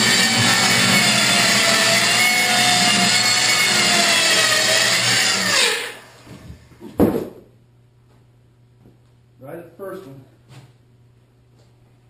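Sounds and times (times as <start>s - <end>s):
circular saw cutting wood: 0.0s - 6.3s.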